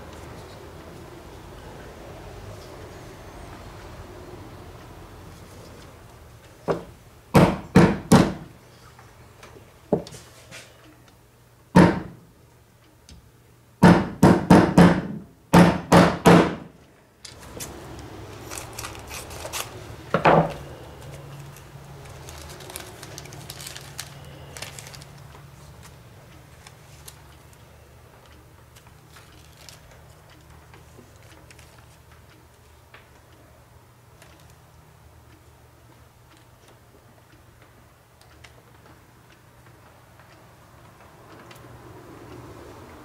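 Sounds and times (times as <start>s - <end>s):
hammer knocking on metal part: 13.8s - 16.7s
plastic bag rustling: 17.4s - 27.2s, 29.0s - 30.2s.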